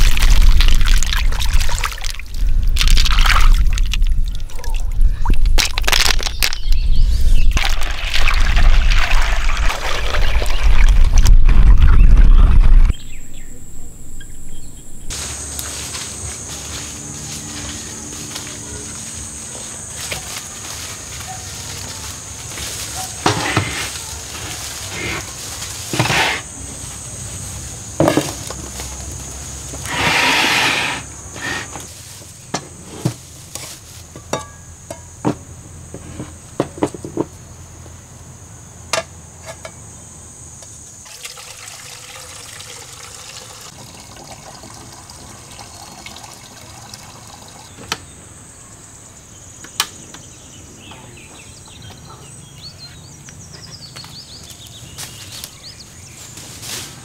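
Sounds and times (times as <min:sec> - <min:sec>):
water splashing and sloshing: 0:00.0 - 0:06.2, 0:07.5 - 0:12.9
rush of water: 0:07.6 - 0:12.9
high insect drone: 0:12.9 - 0:57.0.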